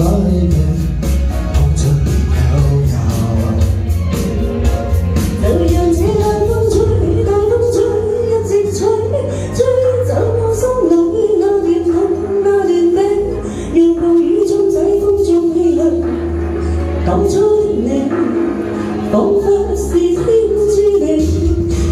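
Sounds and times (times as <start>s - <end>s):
karaoke backing track with beat: 0.0s - 21.9s
woman singing into microphone: 5.4s - 21.9s.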